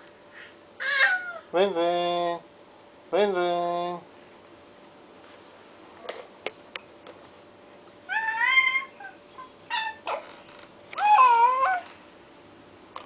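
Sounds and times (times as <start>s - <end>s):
baby squealing: 0.8s - 1.5s, 8.1s - 10.2s, 11.0s - 11.9s.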